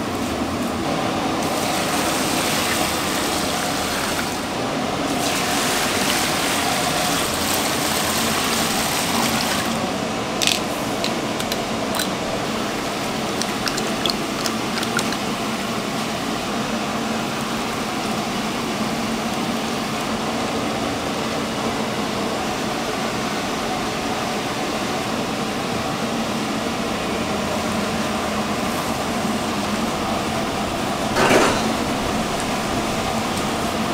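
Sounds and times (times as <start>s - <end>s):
steady background noise: 0.0s - 33.9s
water running from a tap: 11.4s - 15.4s.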